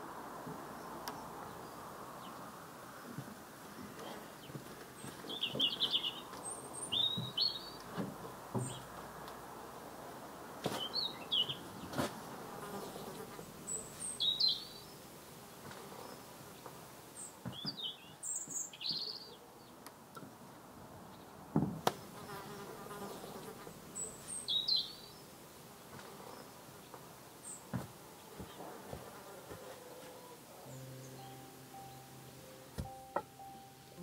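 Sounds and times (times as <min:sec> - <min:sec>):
small birds chirping: 0:00.5 - 0:09.4, 0:10.3 - 0:34.0
insect buzzing: 0:12.0 - 0:14.6, 0:21.8 - 0:24.9.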